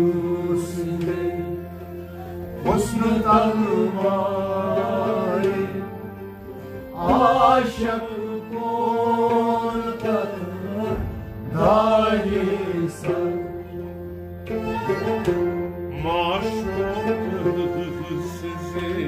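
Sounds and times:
bowed string instrument: 0.0 - 19.0
harmonium held notes: 0.0 - 19.0
man singing devotional song: 2.6 - 5.8, 14.9 - 19.0.

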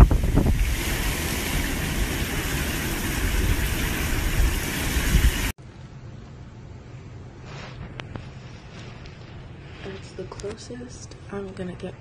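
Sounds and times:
wind buffeting microphone: 0.0 - 2.1
heavy rain: 0.0 - 5.6.

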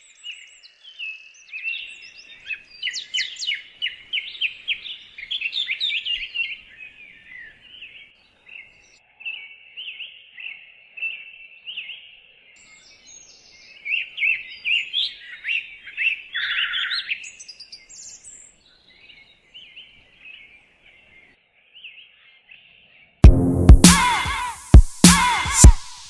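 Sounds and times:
songbirds chirping and whistling: 0.0 - 23.2
buzzy bird note: 23.2 - 26.0.

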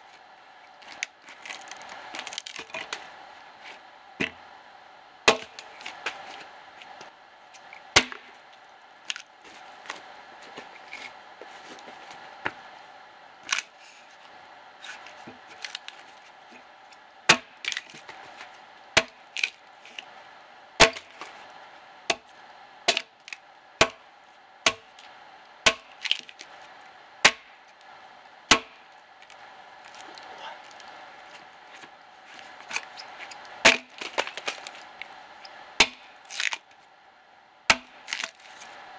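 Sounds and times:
axe chopping log: 5.3 - 6.2, 8.0 - 8.3, 17.3 - 18.1, 19.0 - 19.5, 20.8 - 21.2, 22.9 - 23.2, 23.8 - 24.0, 24.6 - 24.9, 25.6 - 26.5, 27.2 - 27.6, 28.5 - 28.8, 33.6 - 34.6, 35.8 - 36.6, 37.7 - 38.5.

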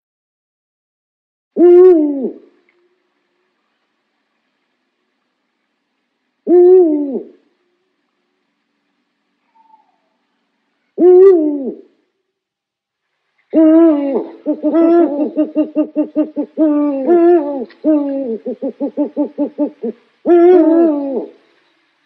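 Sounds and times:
owl calling: 9.4 - 10.2, 13.5 - 21.8
owl rapid pulsed notes: 13.6 - 21.8.

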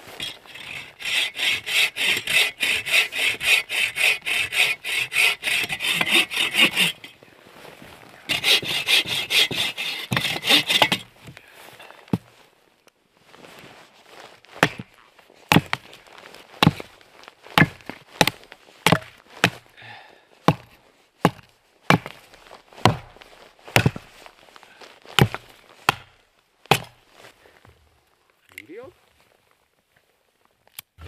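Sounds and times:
axe chopping firewood: 0.2 - 7.0, 8.3 - 11.1, 14.6 - 15.9, 16.6 - 16.9, 17.6 - 19.7, 20.4 - 22.2, 22.8 - 24.1, 25.2 - 27.0.

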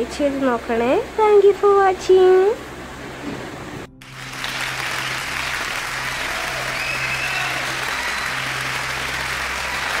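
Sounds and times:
crowd applauding: 4.0 - 10.0.

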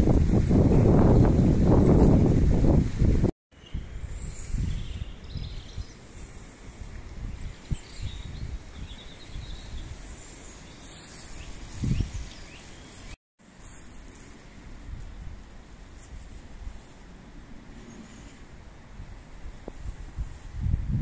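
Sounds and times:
wind rumble on microphone: 0.0 - 13.2, 14.0 - 21.0
small birds chirping: 3.5 - 13.2.

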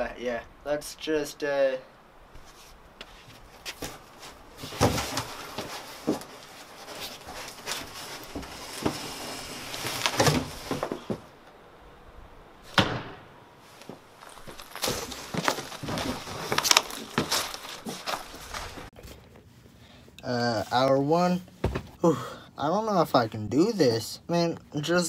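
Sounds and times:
cardboard rustling and creasing: 2.5 - 11.3, 13.7 - 19.1.

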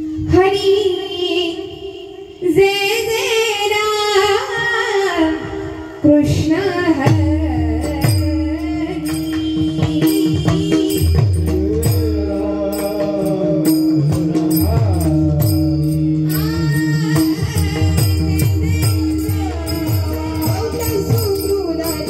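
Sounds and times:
woman singing devotional song: 0.0 - 22.0
low drum beat: 7.0 - 22.0
small hand cymbals: 7.5 - 22.0.

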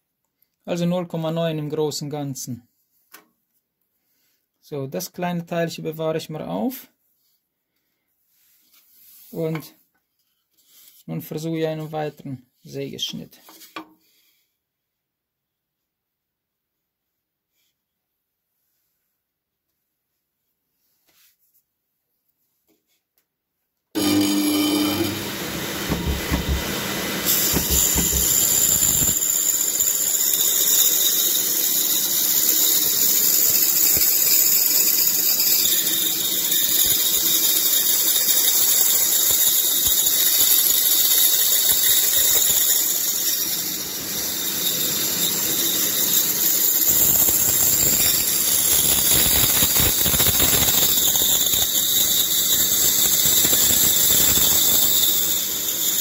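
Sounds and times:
band saw cutting wood: 24.0 - 56.0.

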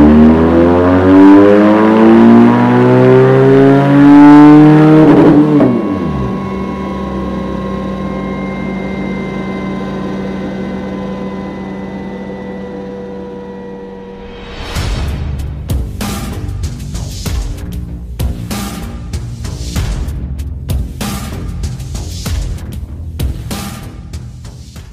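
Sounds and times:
motorcycle engine revving: 0.0 - 14.3
steady falling whine: 4.4 - 15.2.

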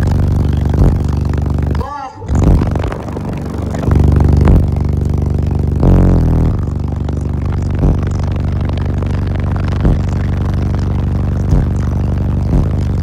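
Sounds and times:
distorted car audio bass music: 0.0 - 13.0.

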